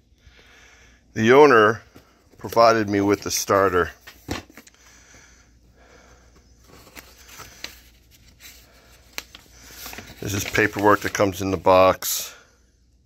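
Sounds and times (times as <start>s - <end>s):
paper and cardboard handling: 6.4s - 11.7s.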